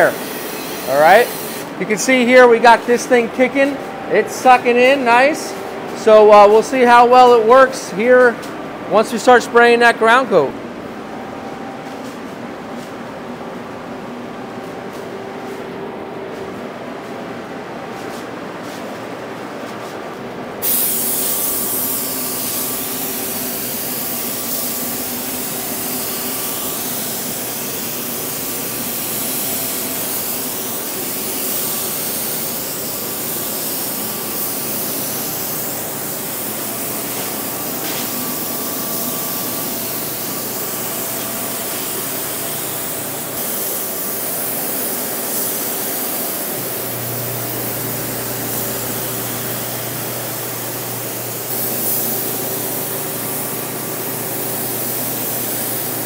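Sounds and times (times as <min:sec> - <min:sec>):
spray gun hissing: 0:00.0 - 0:06.1, 0:20.6 - 0:56.0
fan humming: 0:00.0 - 0:56.0.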